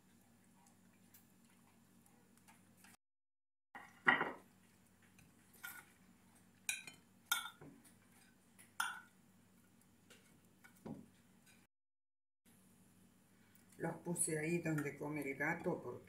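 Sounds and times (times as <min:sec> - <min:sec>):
metal spoon clinking on dishes: 0:06.7 - 0:07.6, 0:08.8 - 0:09.1.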